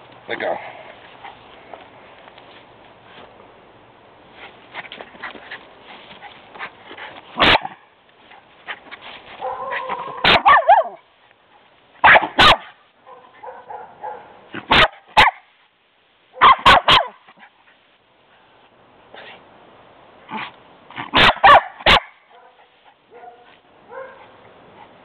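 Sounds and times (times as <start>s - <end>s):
puppy barking: 7.4s - 7.8s, 9.4s - 11.0s, 12.0s - 15.5s, 16.4s - 17.2s, 20.4s - 24.3s.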